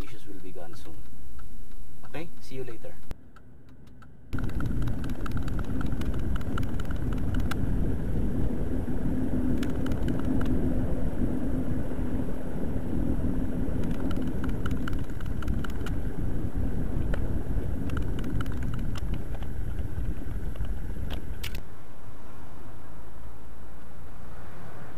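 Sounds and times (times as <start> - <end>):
car road and engine drone: 0.0 - 24.9.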